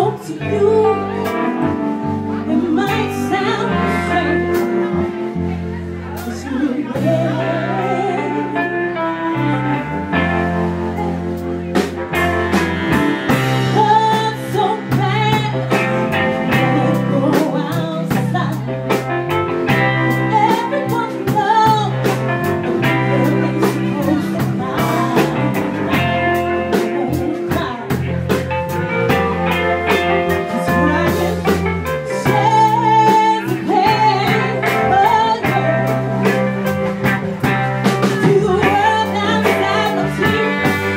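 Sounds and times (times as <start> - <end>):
woman singing into a microphone: 0.0 - 11.4, 12.6 - 19.1, 19.7 - 28.4, 29.1 - 40.9
backing band: 0.0 - 40.9
sustained bass notes: 0.0 - 40.9.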